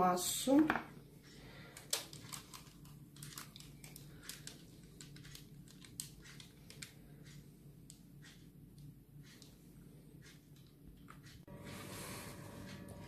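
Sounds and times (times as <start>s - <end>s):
low steady hum: 0.0s - 13.0s
light clicks and crinkles: 1.2s - 9.6s.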